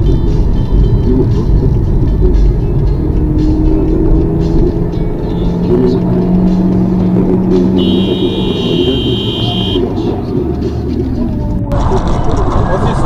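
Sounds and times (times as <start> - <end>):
car road and engine rumble: 0.0 - 13.0
steady high tone: 7.6 - 10.2.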